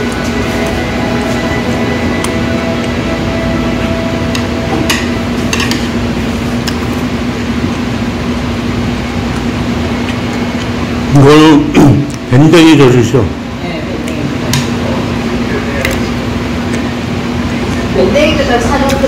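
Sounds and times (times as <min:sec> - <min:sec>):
restaurant room hum: 0:00.0 - 0:19.0
tableware clinking: 0:04.3 - 0:06.0.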